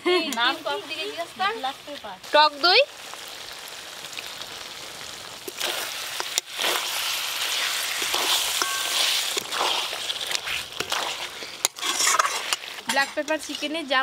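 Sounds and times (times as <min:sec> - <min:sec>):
chicken sizzling in a pan: 0:00.2 - 0:14.0
spatula scraping a metal pan: 0:05.5 - 0:14.0.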